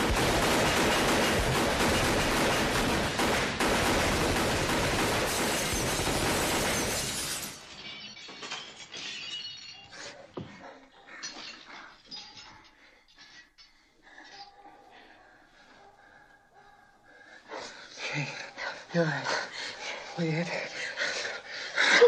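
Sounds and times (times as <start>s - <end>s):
automatic gunfire: 0.0s - 7.2s
glass shattering: 5.3s - 10.2s, 11.2s - 13.4s
falling glass and debris clinks: 5.3s - 10.3s, 11.2s - 14.4s.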